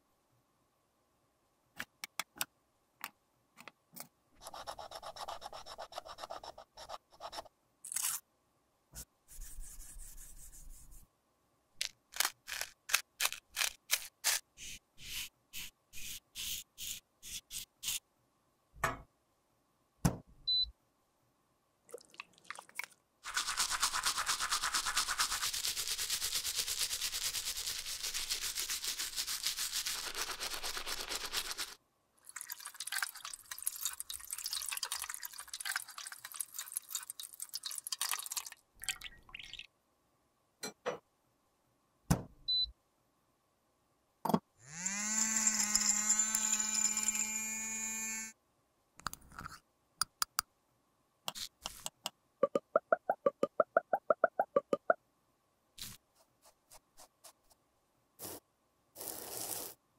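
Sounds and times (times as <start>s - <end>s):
tool scraping powder: 12.2s - 18.0s, 58.2s - 58.4s, 59.0s - 59.8s.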